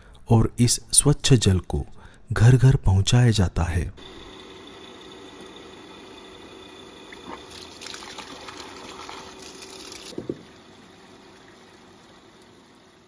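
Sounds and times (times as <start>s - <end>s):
water gushing from a tap: 7.0s - 13.0s.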